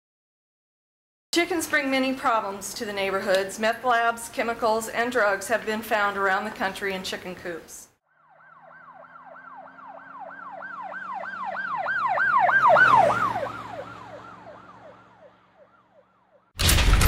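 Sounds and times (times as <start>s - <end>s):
emergency siren yelping: 8.0s - 16.6s.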